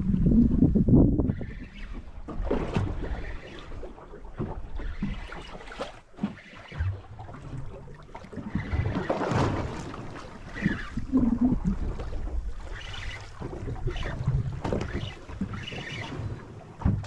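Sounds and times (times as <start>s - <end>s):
wind buffeting microphone: 0.0s - 3.2s
water slapping against boat hull: 1.2s - 17.0s.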